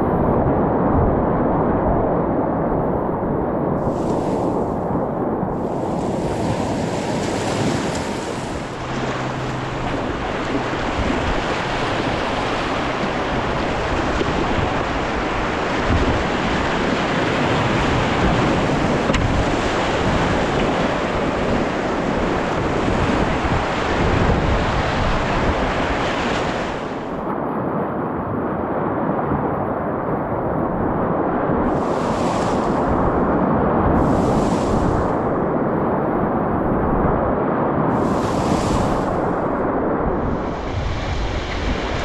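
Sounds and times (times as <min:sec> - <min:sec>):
whitewater rapids rushing: 0:03.8 - 0:26.8.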